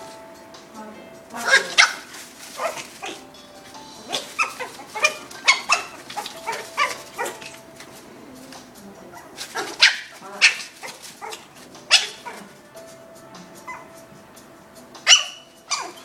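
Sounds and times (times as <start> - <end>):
puppies yapping: 1.4 - 8.0, 9.1 - 12.6, 13.6 - 14.0, 15.0 - 16.0.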